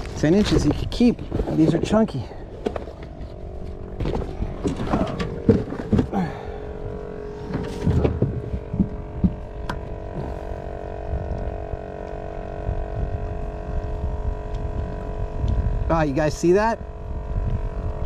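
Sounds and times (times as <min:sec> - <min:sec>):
motor hum: 0:00.0 - 0:18.0
knocks and thumps: 0:04.0 - 0:06.2, 0:07.5 - 0:10.3.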